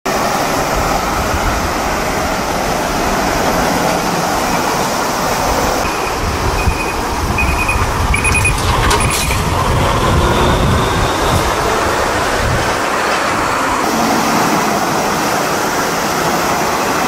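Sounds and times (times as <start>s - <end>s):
truck diesel engine rumble: 0.1s - 16.5s
tyre noise on road: 0.1s - 17.0s
short high beeps: 5.8s - 8.6s.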